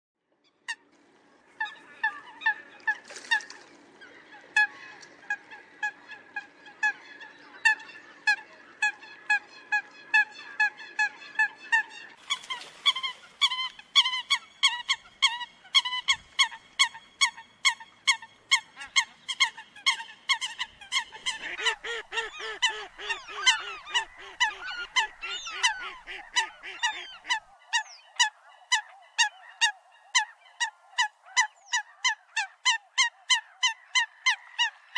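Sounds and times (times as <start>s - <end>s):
coots calling: 1.6s - 34.9s.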